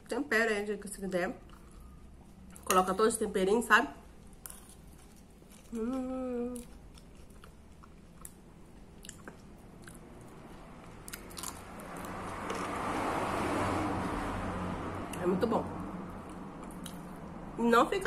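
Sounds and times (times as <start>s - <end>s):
chewing food: 1.4s - 2.8s, 4.2s - 12.9s, 16.2s - 17.3s
person humming: 5.7s - 6.6s.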